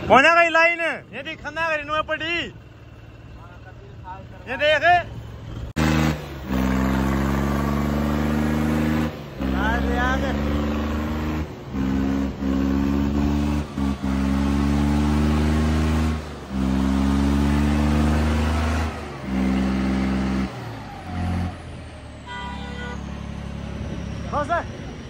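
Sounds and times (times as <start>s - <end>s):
tractor diesel engine at high revs: 2.5s - 25.0s.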